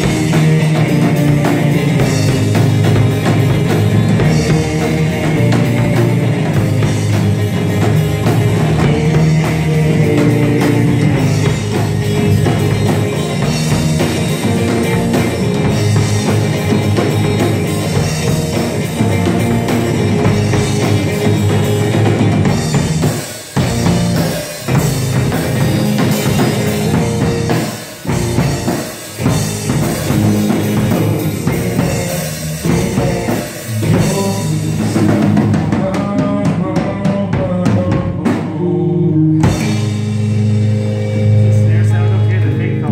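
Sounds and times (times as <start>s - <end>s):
drum kit: 0.0s - 42.9s
electric guitars: 0.0s - 42.9s.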